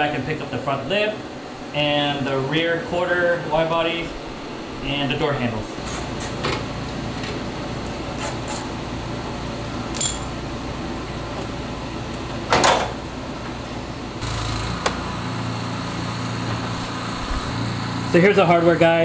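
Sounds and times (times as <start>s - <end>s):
ringing metallic clink: 10.0s - 10.3s.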